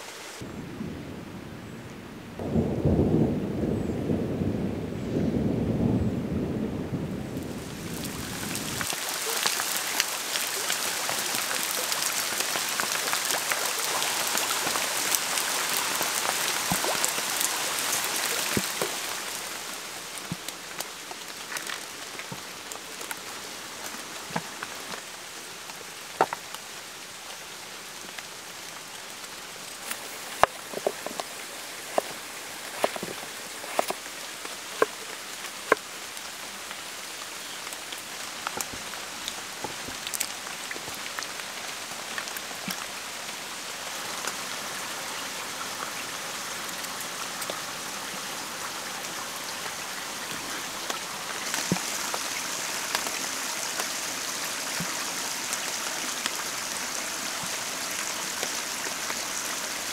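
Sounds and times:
rain falling: 0.0s - 59.9s
low thunder rumble: 0.4s - 8.9s.

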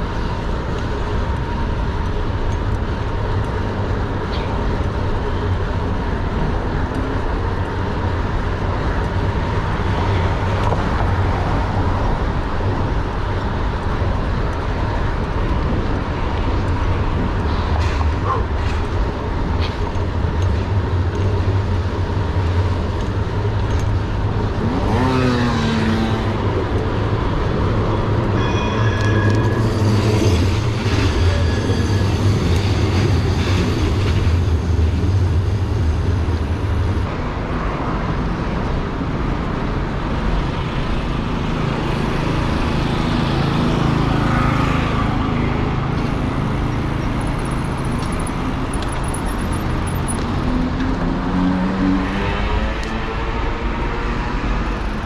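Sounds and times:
road traffic rumbling: 0.0s - 55.0s
high-pitched squeal: 28.3s - 34.8s.

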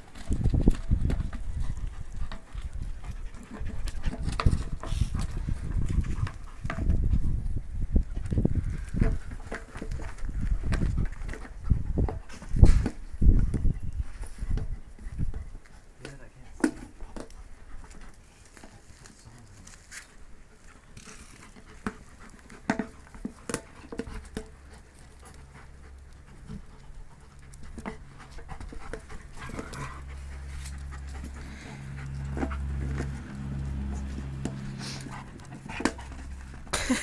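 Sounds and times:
dog panting: 1.1s - 6.9s, 20.5s - 36.7s
low steady rumble: 24.5s - 37.0s.

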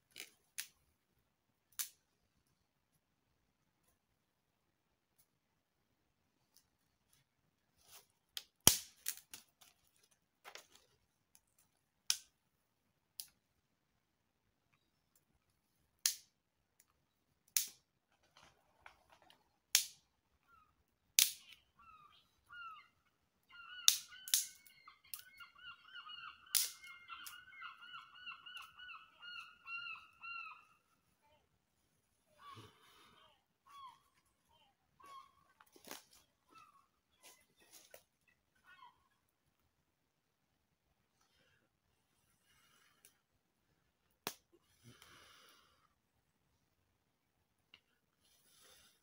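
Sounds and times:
dry sticks snapping: 1.7s - 2.0s, 8.4s - 10.1s, 11.3s - 12.3s, 16.0s - 16.9s, 17.5s - 17.8s, 19.7s - 20.0s, 21.2s - 21.6s, 23.9s - 25.3s, 26.5s - 27.4s.

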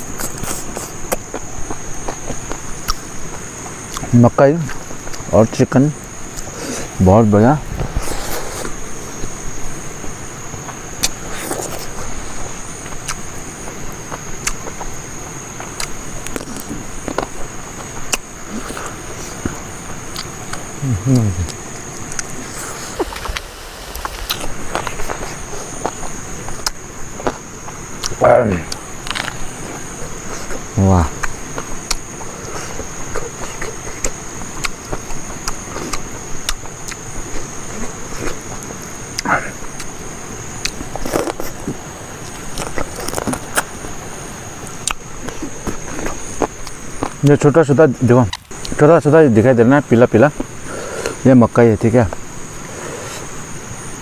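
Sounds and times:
high insect drone: 0.0s - 54.0s
chewing and lip-smacking: 0.1s - 5.3s, 10.0s - 40.0s, 40.6s - 43.8s, 44.6s - 47.4s.

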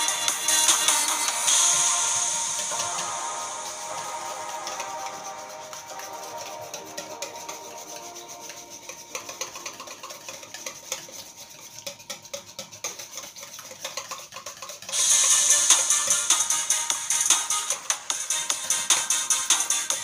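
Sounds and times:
background music: 0.0s - 13.5s, 14.9s - 20.0s
utensil scraping metal bowl: 4.6s - 16.3s.

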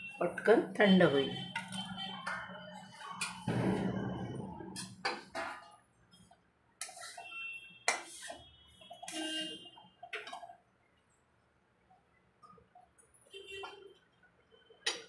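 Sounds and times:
steel spoon scraping a pan: 4.7s - 10.5s.

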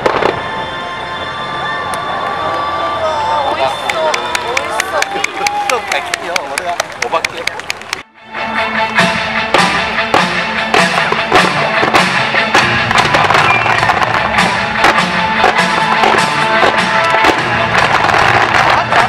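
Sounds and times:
fireworks bursting with bangs: 0.0s - 0.5s, 9.5s - 19.0s
fireworks show music: 0.0s - 2.4s, 6.4s - 19.0s.

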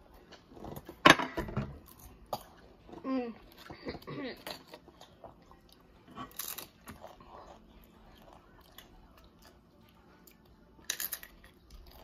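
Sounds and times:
potato chips crunching: 6.2s - 7.2s.

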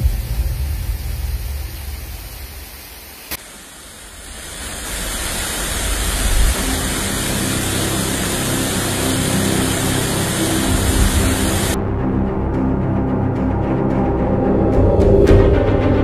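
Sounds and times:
waterfall rushing: 0.0s - 11.8s.

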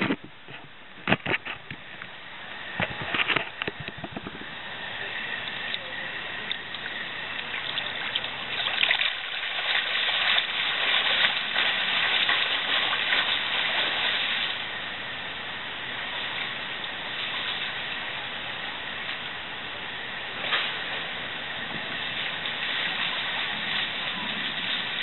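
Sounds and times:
water splashing from swimmer: 6.7s - 14.7s.

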